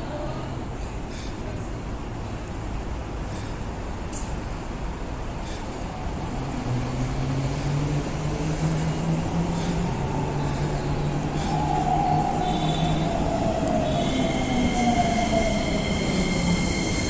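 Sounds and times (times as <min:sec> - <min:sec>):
train rumble: 0:00.0 - 0:17.0.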